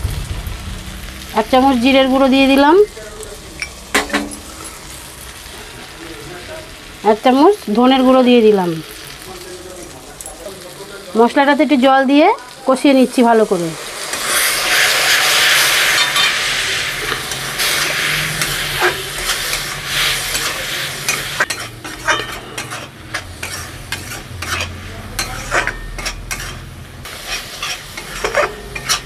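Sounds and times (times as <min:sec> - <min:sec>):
masala sizzling in hot oil: 0:00.0 - 0:29.0
spatula scraping pan: 0:13.8 - 0:29.0.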